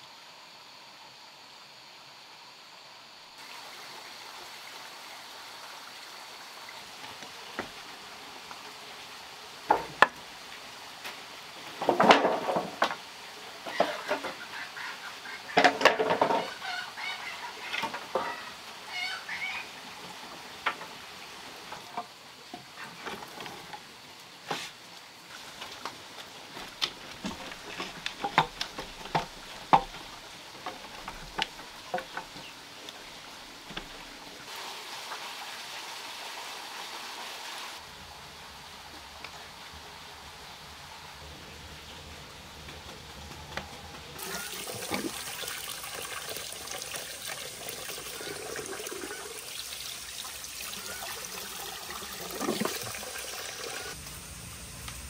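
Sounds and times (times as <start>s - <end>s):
firewood knocking together: 11.8s - 13.0s, 26.6s - 32.5s
wood fire crackling: 24.9s - 34.3s.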